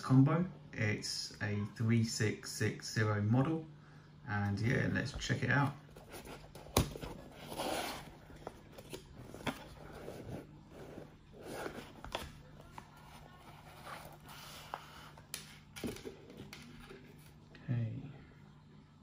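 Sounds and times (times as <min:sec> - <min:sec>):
cardboard box sliding and scraping: 0:07.2 - 0:08.2, 0:09.2 - 0:12.1.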